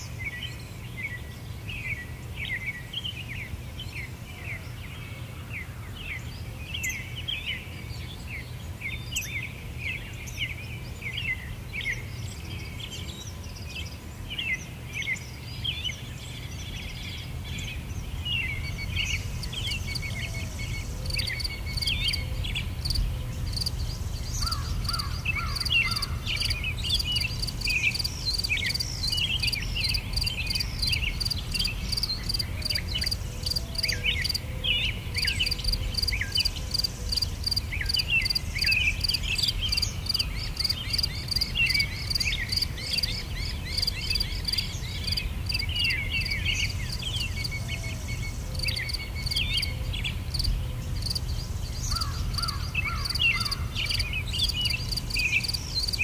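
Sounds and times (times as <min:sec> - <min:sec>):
birds singing: 0:00.0 - 0:56.0
insect chirping in fast pulse: 0:24.4 - 0:33.6.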